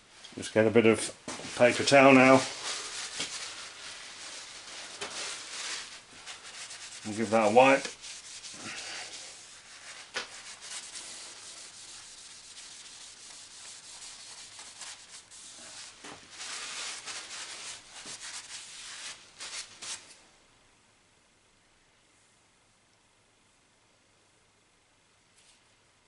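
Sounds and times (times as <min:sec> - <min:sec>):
paper towel scrubbing metal: 0:01.5 - 0:20.0.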